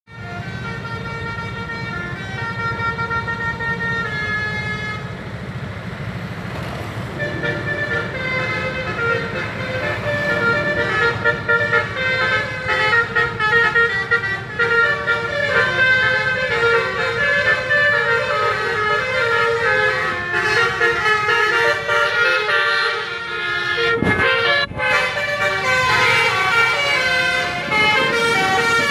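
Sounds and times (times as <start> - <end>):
musical air horns playing tune: 7.1 - 28.9.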